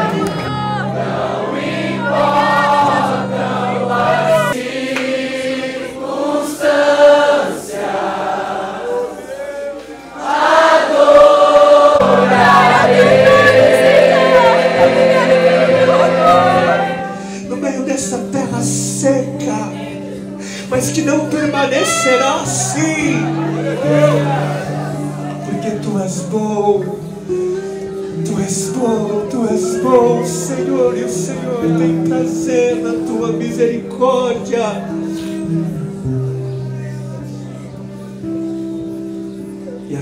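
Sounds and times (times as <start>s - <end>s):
instrumental backing with bass notes: 0.0s - 4.6s, 11.0s - 40.0s
group singing worship song: 0.0s - 17.6s.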